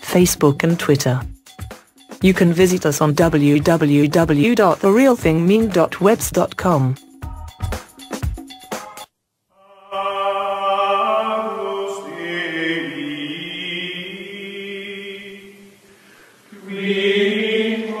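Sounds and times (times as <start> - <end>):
choir singing sustained chords: 9.6 - 18.0.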